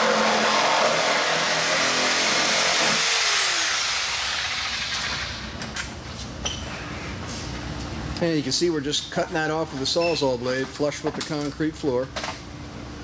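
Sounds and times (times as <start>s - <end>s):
reciprocating saw cutting: 0.0s - 5.0s.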